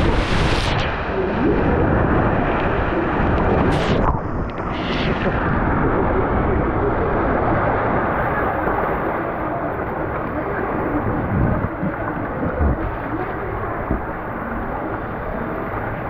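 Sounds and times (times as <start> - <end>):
rushing water: 0.0 - 16.0
wind buffeting microphone: 10.4 - 14.6.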